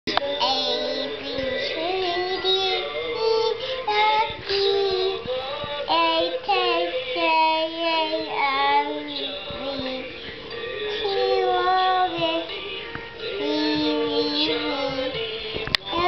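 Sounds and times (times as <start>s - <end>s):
toddler singing through toy speaker: 0.1s - 10.1s, 10.8s - 12.6s, 13.2s - 16.0s.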